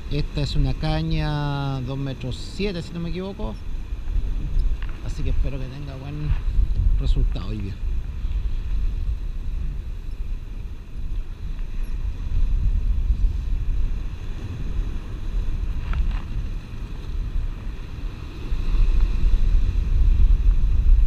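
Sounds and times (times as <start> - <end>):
ocean surf on rocks: 0.0 - 21.0
wind buffeting microphone: 0.0 - 21.0.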